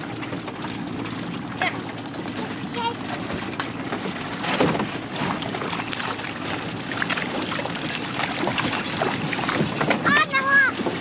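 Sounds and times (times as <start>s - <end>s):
low motor hum: 0.0s - 11.0s
water splashing and dripping: 0.0s - 11.0s.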